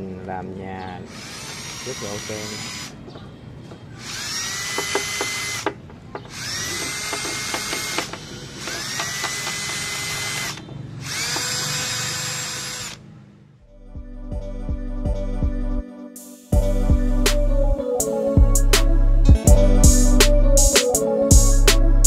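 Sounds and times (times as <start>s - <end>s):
electric motor whine: 4.0s - 5.6s, 6.3s - 13.0s
light knocks: 4.8s - 8.2s.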